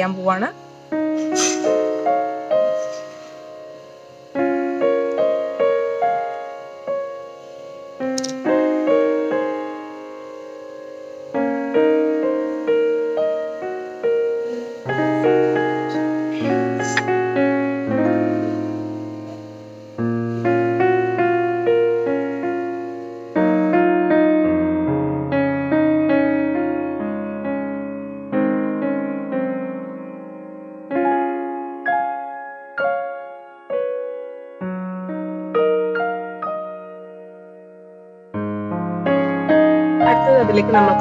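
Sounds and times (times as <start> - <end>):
piano melody: 0.0 - 41.0
low piano bass notes: 11.0 - 30.9, 38.4 - 41.0.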